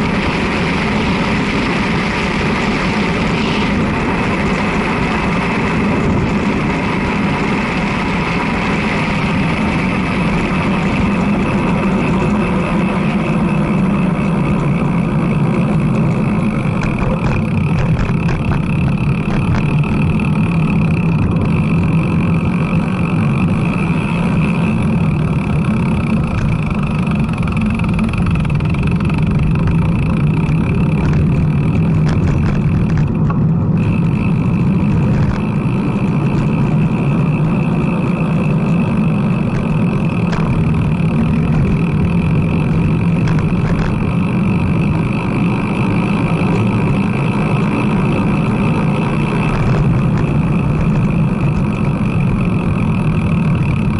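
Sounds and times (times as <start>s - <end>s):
bicycle tyres rolling on asphalt: 0.0s - 53.9s
wind on microphone: 0.0s - 53.9s.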